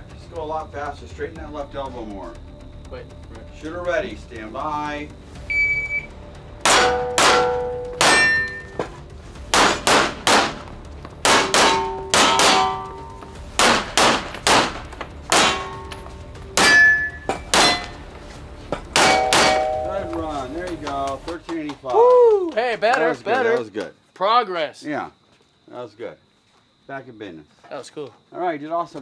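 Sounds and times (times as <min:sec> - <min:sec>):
pistol shots: 0:06.6 - 0:08.6, 0:09.5 - 0:10.6, 0:11.2 - 0:13.0, 0:13.6 - 0:16.0
steel plate ringing: 0:06.6 - 0:08.8, 0:11.3 - 0:13.2, 0:15.3 - 0:18.0, 0:19.0 - 0:20.6.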